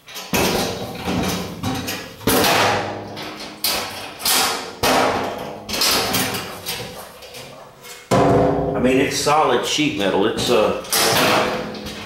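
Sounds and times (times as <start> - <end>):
sharp metallic knocks: 0.2 - 6.6, 8.1 - 9.4, 10.3 - 12.0
metal cabinet door banging shut: 0.2 - 6.9, 8.1 - 9.3, 10.4 - 12.0.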